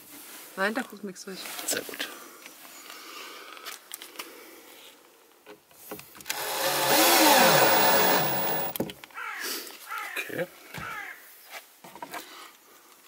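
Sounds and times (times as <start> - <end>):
drill light clicks: 6.3 - 8.8
drill motor whirring: 6.3 - 8.8.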